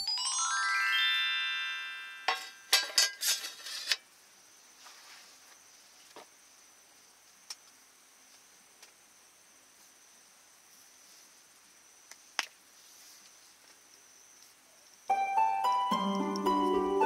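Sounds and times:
metal lid clattering on table: 2.3s - 4.0s.

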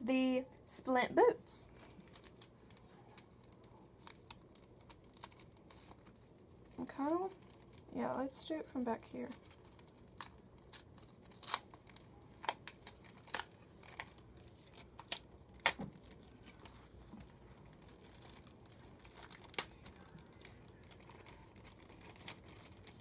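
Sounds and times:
plastic bag crinkling: 1.6s - 23.0s.

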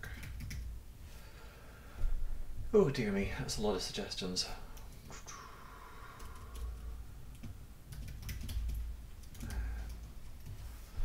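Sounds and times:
typing on computer keyboard: 0.0s - 0.7s, 6.2s - 10.6s.

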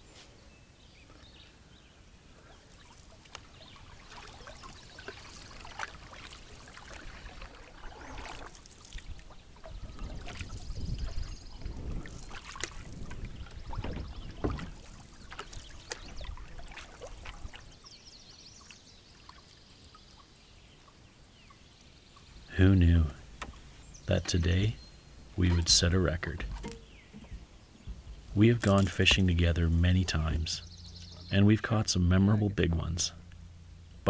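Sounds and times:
canoe paddle pulling through water: 2.2s - 21.5s, 22.3s - 31.4s
water splashing and dripping: 2.4s - 17.9s, 18.6s - 21.0s, 25.4s - 29.3s.

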